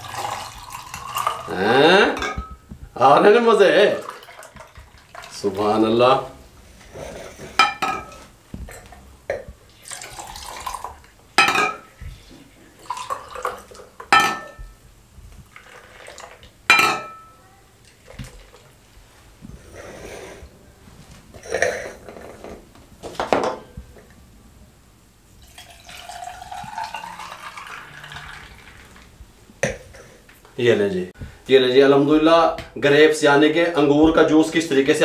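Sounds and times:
juice pouring over ice: 0.0 - 1.6, 9.7 - 11.1, 15.5 - 16.5, 25.4 - 29.1.

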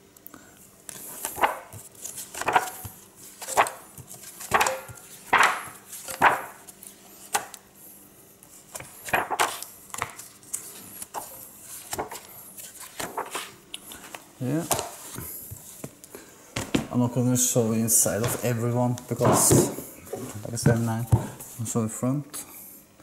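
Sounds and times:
book pages turning: 0.9 - 7.6, 8.5 - 16.0.

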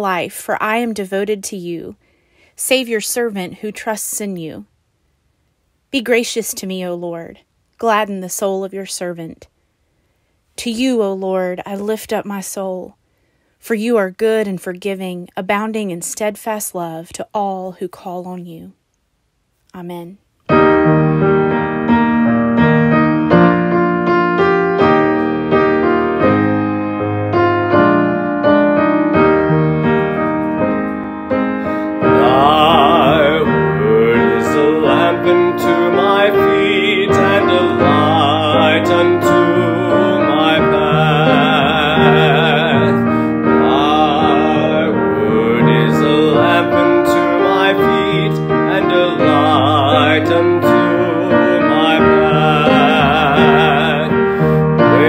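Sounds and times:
piano playing a hymn: 20.5 - 55.0
person singing with vibrato: 31.6 - 55.0.

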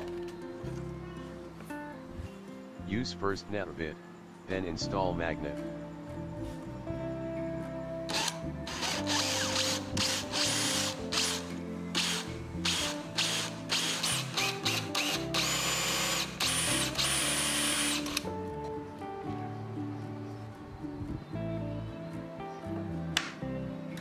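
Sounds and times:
power drill boring into wood: 8.1 - 18.2.

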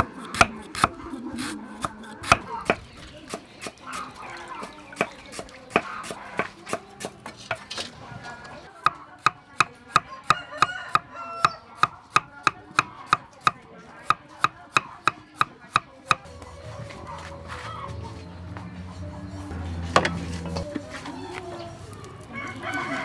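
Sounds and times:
cleaver chopping on wooden board: 0.0 - 1.0, 1.8 - 4.0, 4.7 - 7.7, 8.9 - 16.2.

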